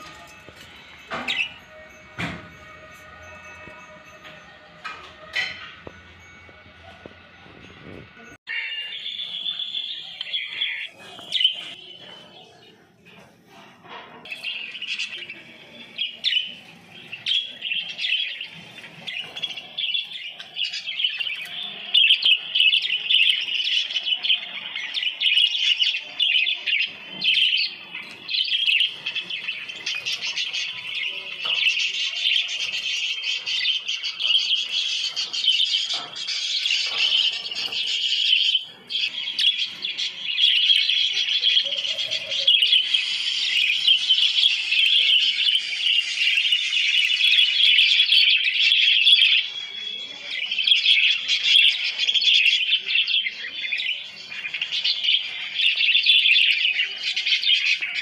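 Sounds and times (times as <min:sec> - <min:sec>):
budgerigars chattering: 0:16.1 - 0:58.0.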